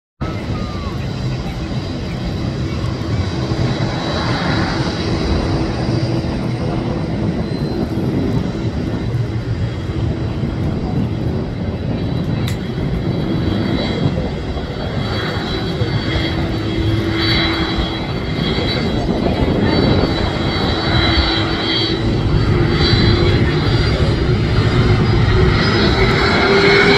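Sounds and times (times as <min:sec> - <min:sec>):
jet engines roaring at takeoff: 0:00.2 - 0:26.9
thin high engine whine: 0:00.2 - 0:26.9.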